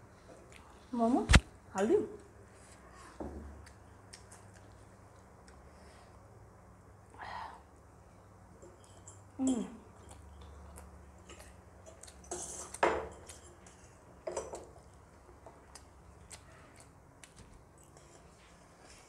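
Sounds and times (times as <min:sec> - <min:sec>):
chewing: 0:03.6 - 0:05.7, 0:08.7 - 0:14.0, 0:14.6 - 0:19.0.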